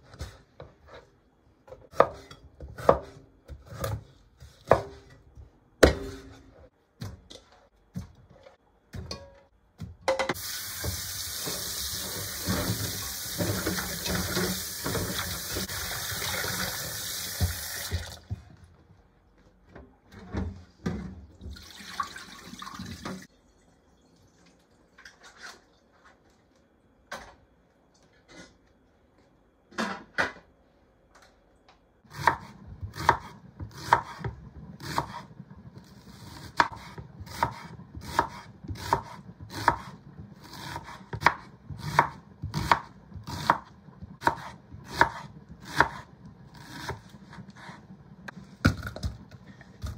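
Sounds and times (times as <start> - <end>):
knife chopping onion: 1.7 - 8.3, 32.1 - 47.9
tap water running into pot: 10.4 - 18.3, 21.4 - 23.3.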